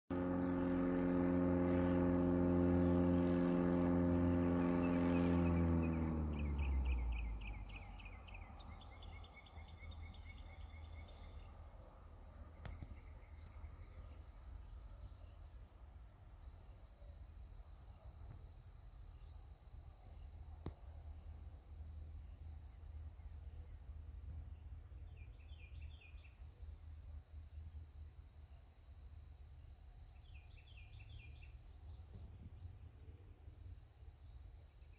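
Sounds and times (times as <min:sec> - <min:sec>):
insects high buzz: 0:00.1 - 0:09.4
loud droning engine-like hum: 0:00.1 - 0:34.9
insect chirps: 0:06.4 - 0:34.9.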